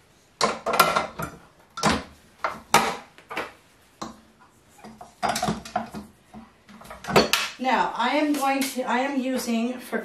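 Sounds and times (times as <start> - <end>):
metal bowl clanking and scraping: 0.4 - 2.0.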